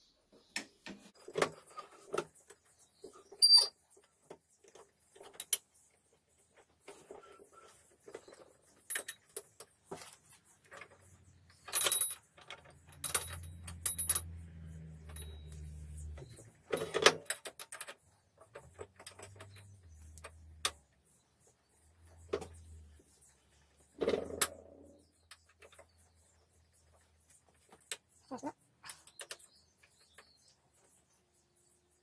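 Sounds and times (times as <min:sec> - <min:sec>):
metal parts clinking and knocking: 0:08.1 - 0:15.5.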